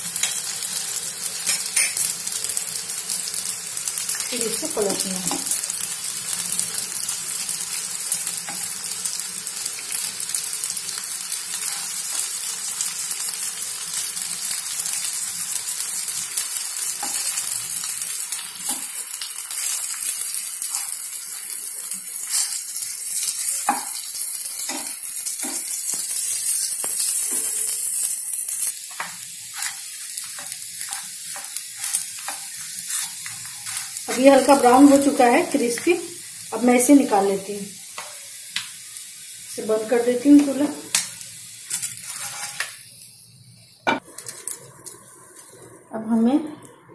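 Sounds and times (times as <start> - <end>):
dough sizzling in oil: 0.0 - 46.9
spatula scraping a pan: 22.1 - 24.0, 28.9 - 35.1, 41.7 - 42.8.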